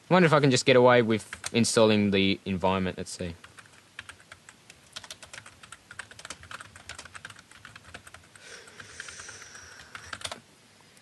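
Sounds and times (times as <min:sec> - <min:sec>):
computer keyboard typing: 0:01.3 - 0:01.6, 0:03.4 - 0:10.4.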